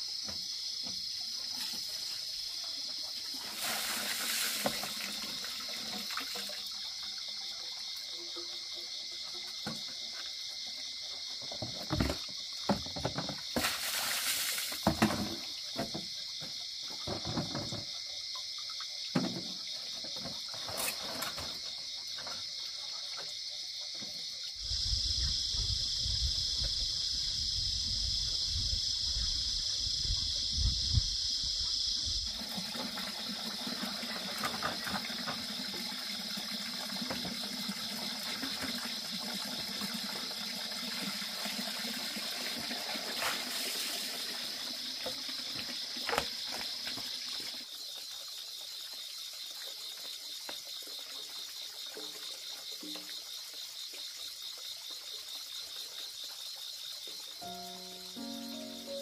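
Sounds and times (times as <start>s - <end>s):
night insects chirring: 0.0s - 59.0s
water splashing into plastic basin: 3.2s - 6.8s, 11.5s - 16.1s, 32.3s - 47.7s.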